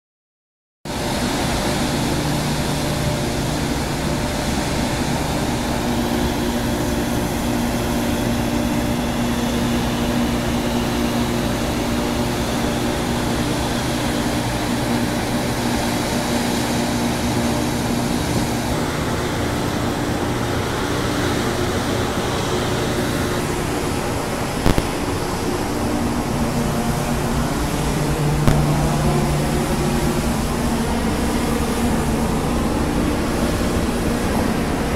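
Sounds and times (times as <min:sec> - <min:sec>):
ship machinery drone: 0:00.9 - 0:34.9
brief click: 0:24.6 - 0:25.0.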